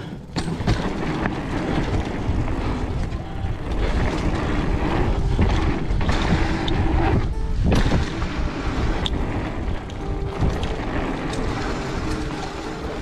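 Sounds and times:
bike knocks and rattles: 0:00.0 - 0:13.0
mountain bike tires rolling on dirt: 0:00.0 - 0:13.0
wind over microphone: 0:00.6 - 0:13.0.

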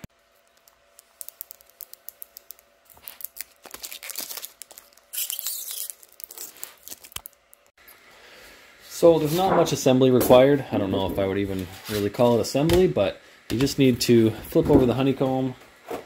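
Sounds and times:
loose film crinkling: 0:00.2 - 0:07.7
plastic film peeling crackles: 0:00.3 - 0:07.7
plastic film tearing rip: 0:01.2 - 0:07.4.

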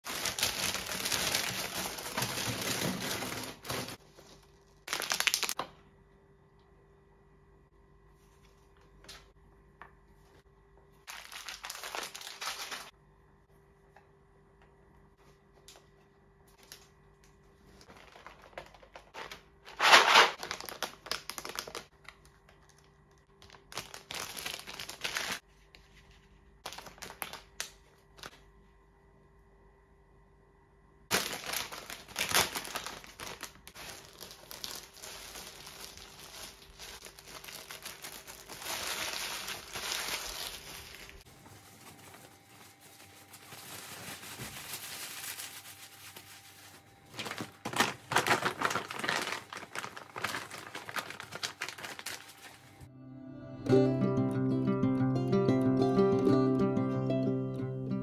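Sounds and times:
plastic bag crinkling: 0:00.0 - 0:05.6, 0:11.1 - 0:12.9, 0:17.6 - 0:25.4, 0:26.6 - 0:28.3, 0:31.1 - 0:52.9.

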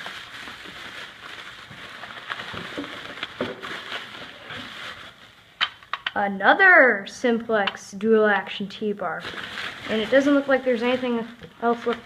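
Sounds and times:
bubble wrap rustling and crinkling: 0:00.0 - 0:05.8, 0:08.8 - 0:12.0.

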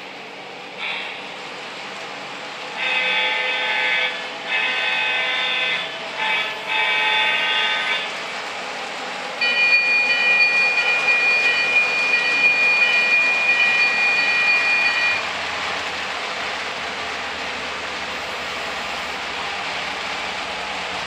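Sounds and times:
model trains rolling on track: 0:00.0 - 0:21.0
electronic train horn chord: 0:02.8 - 0:08.1
high steady tone: 0:09.4 - 0:15.3.

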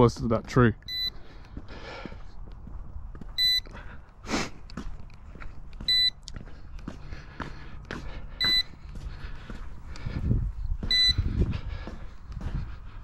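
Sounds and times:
short high beeps: 0:00.9 - 0:01.1, 0:03.4 - 0:03.6, 0:05.9 - 0:06.2, 0:08.4 - 0:08.6, 0:10.9 - 0:11.2.

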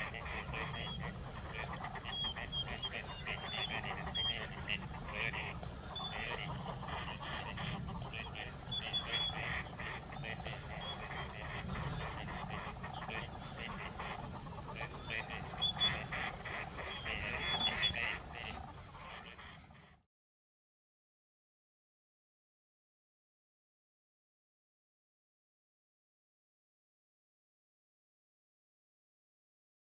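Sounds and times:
steady low rumble: 0:00.0 - 0:18.6
ducks quacking: 0:00.0 - 0:20.0.

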